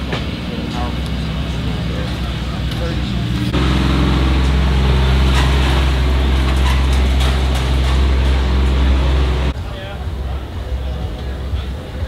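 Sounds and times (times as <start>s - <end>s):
car engine idling: 0.0s - 9.6s.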